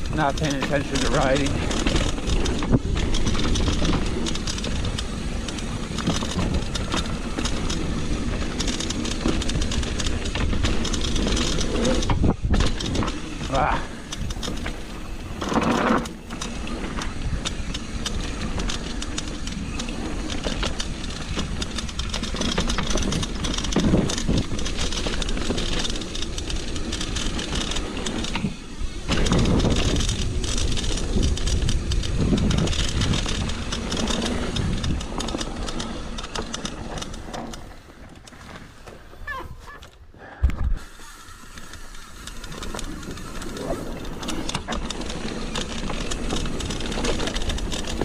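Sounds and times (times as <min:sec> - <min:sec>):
wind rushing over microphone: 0:00.0 - 0:18.4, 0:28.4 - 0:37.3
bike chain and frame clattering: 0:00.0 - 0:39.8, 0:40.8 - 0:48.0
bike tyres on dirt and gravel: 0:00.0 - 0:48.0.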